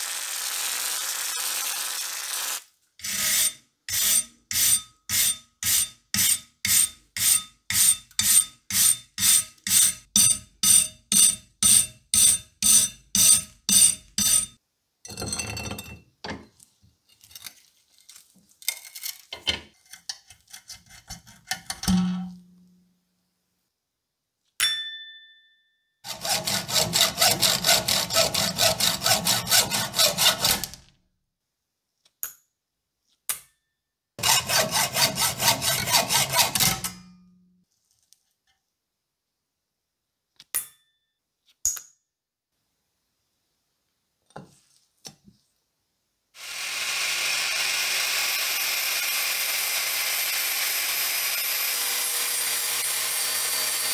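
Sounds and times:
hacksaw cutting metal: 0:03.0 - 0:14.6, 0:19.8 - 0:21.9, 0:26.1 - 0:30.9, 0:34.2 - 0:37.1, 0:46.4 - 0:53.9
wire brush scrubbing metal: 0:26.1 - 0:30.8, 0:34.2 - 0:37.0.

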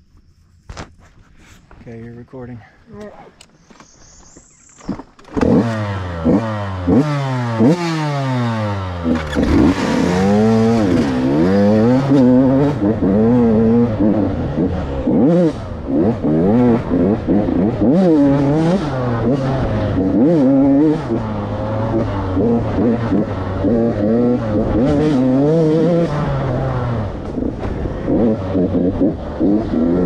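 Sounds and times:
dirt bike engine revving: 0:04.5 - 0:30.0.

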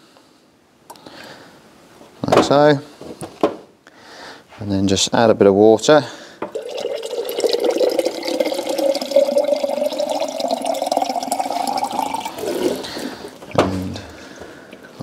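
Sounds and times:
tap water filling a glass jar: 0:06.4 - 0:13.6.

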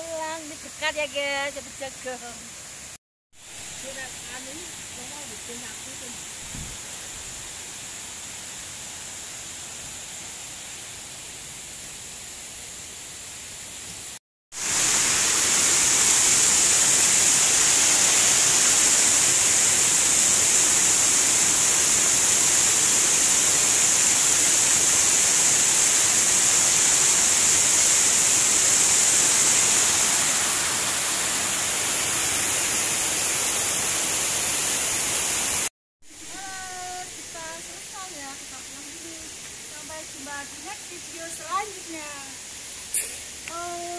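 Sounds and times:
steady outdoor hiss: 0:00.0 - 0:43.9
water rushing over a weir: 0:14.6 - 0:35.6.

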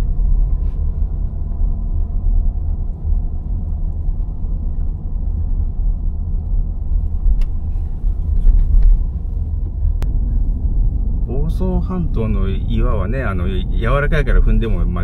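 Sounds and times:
car cabin road and engine rumble: 0:00.0 - 0:15.0.

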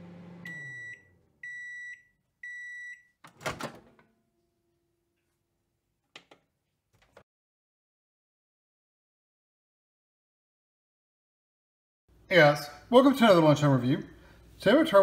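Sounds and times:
microwave oven hum: 0:00.0 - 0:02.8
high microwave beeps: 0:00.4 - 0:03.2
microwave door opening: 0:03.3 - 0:04.0.

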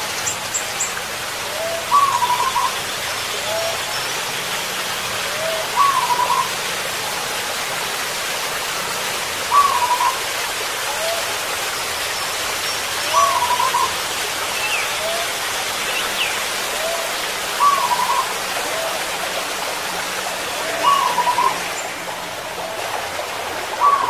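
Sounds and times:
doves cooing: 0:01.4 - 0:03.9, 0:05.2 - 0:06.6, 0:09.5 - 0:10.2, 0:13.0 - 0:14.0, 0:16.7 - 0:24.0.

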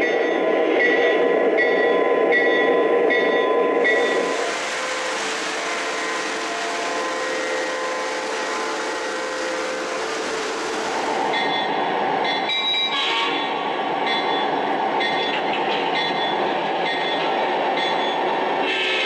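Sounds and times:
model train bell ringing: 0:00.0 - 0:04.2
model trains rolling on track: 0:00.0 - 0:19.0.

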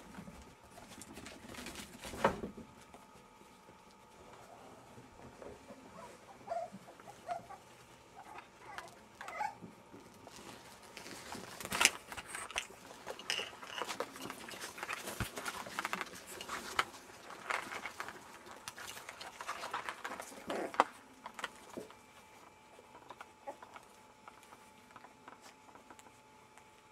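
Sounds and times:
paws pattering and scratching: 0:00.0 - 0:26.9.

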